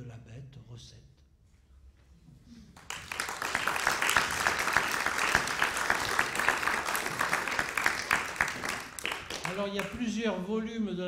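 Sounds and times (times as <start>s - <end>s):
audience applause: 2.8s - 10.0s.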